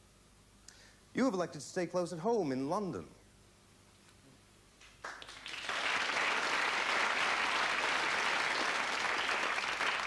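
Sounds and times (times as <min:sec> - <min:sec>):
audience applauding: 0:04.9 - 0:10.0.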